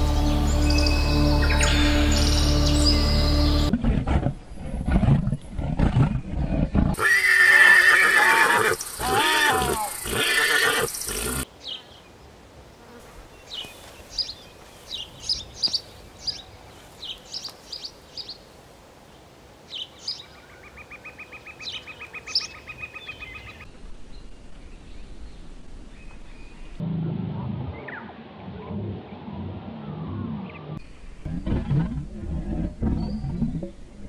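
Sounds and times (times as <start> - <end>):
horse whinnying: 6.9 - 11.4
small birds chirping: 12.8 - 18.4, 19.1 - 26.8.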